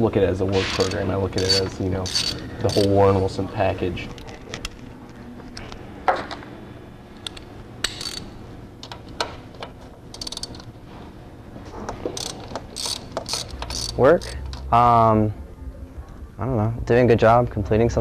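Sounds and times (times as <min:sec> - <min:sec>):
low steady hum: 0:00.0 - 0:18.0
socket wrench ratchet clicks: 0:00.8 - 0:03.0, 0:07.2 - 0:09.0, 0:10.1 - 0:10.7, 0:12.2 - 0:14.7.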